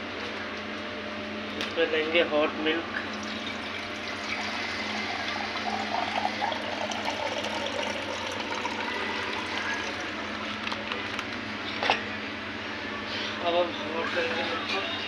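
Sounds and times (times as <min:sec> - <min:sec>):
milk pouring into a steel pitcher: 0:03.0 - 0:11.2.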